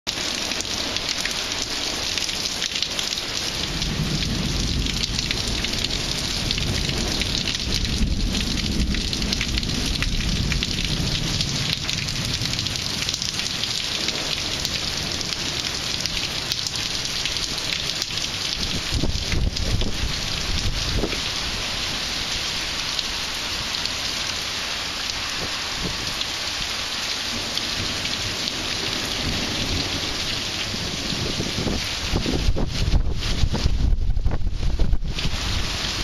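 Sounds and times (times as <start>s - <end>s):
heavy rain pouring: 0.1s - 36.0s
rolling thunder rumble: 3.6s - 14.6s.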